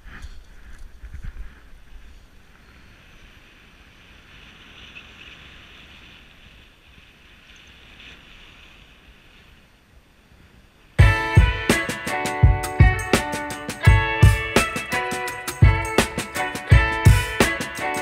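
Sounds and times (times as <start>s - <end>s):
wind rushing over microphone: 0.0s - 11.4s.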